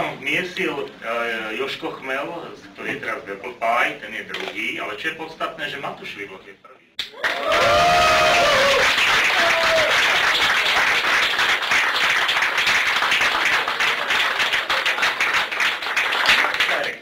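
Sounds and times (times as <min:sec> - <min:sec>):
people applauding: 0:07.0 - 0:17.0
voices cheering: 0:07.1 - 0:10.4.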